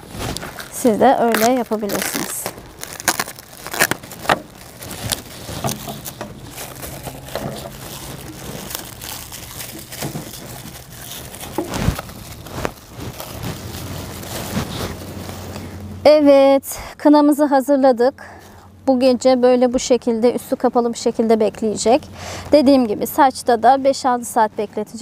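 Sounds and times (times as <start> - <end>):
cling film crinkling: 0.0 - 15.8.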